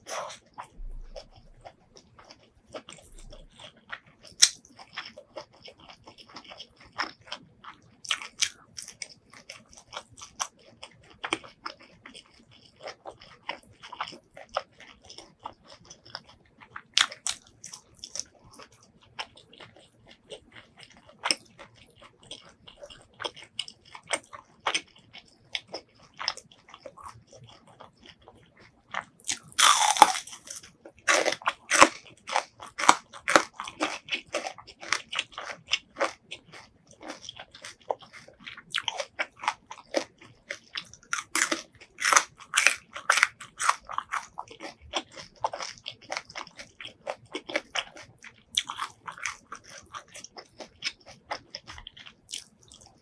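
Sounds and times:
person chewing: 0.0s - 53.0s
crunching bite: 28.9s - 53.0s.

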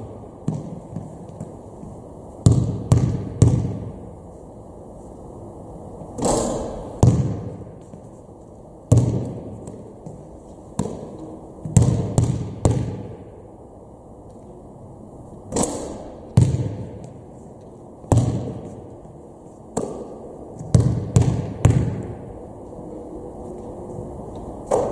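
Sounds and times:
basketball bouncing in echoing gym: 0.0s - 4.1s, 6.2s - 8.1s, 8.9s - 13.4s, 15.5s - 17.3s, 18.0s - 22.4s, 24.7s - 24.9s.

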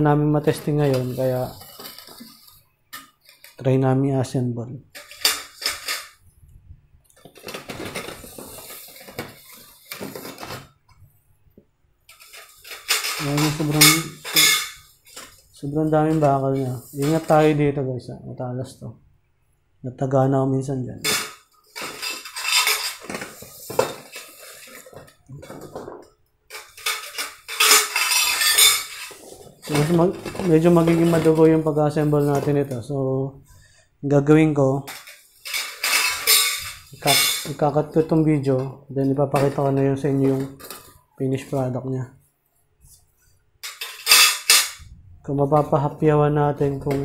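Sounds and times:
metal tubes clattering: 0.0s - 3.6s, 4.9s - 6.2s, 7.2s - 10.7s, 12.1s - 17.5s, 21.0s - 32.8s, 34.8s - 38.7s, 39.4s - 41.6s, 43.6s - 44.9s.

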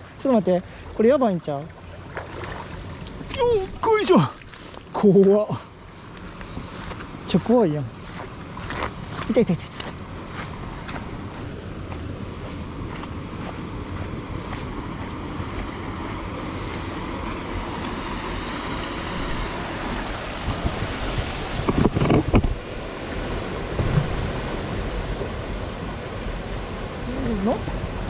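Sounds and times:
stream water flowing: 0.0s - 28.0s
wind buffeting microphone: 7.9s - 28.0s
loud bumps and rustles: 23.7s - 24.4s.

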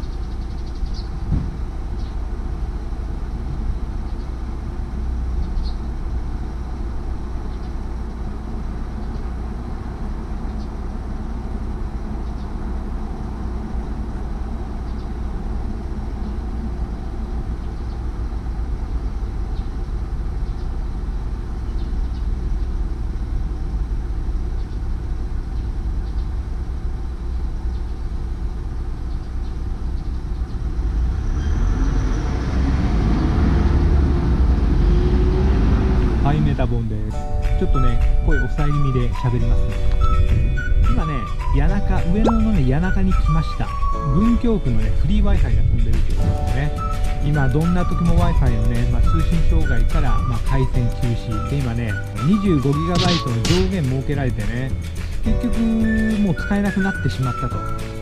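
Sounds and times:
street traffic rumble: 0.0s - 58.0s
faint high chirps: 42.2s - 42.8s.

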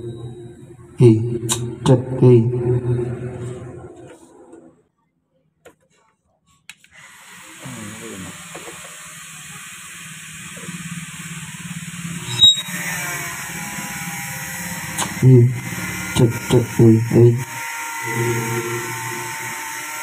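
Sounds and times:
low hum from speakers: 0.0s - 4.8s, 15.0s - 19.5s.

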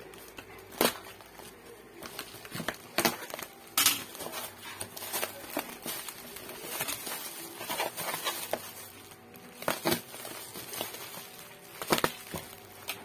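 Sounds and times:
bubble wrap crinkling: 0.0s - 13.0s
cardboard flaps scraping: 4.2s - 12.9s.

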